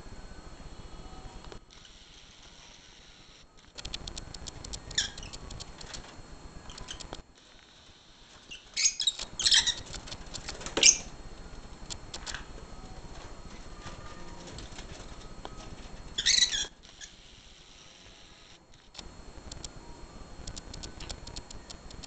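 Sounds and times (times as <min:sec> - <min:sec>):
lovebirds chirping: 0:08.5 - 0:09.8, 0:16.2 - 0:17.2
lovebirds squawking: 0:08.5 - 0:09.9, 0:16.2 - 0:17.1.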